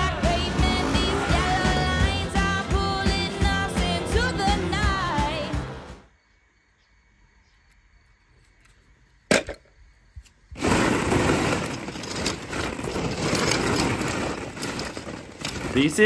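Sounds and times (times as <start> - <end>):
plastic balls clattering: 10.6 - 16.0.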